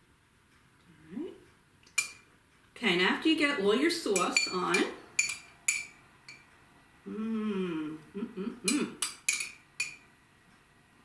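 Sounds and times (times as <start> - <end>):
metal spoon clinking glass bowl: 4.2 - 6.5, 9.0 - 10.0
person humming: 7.0 - 9.0.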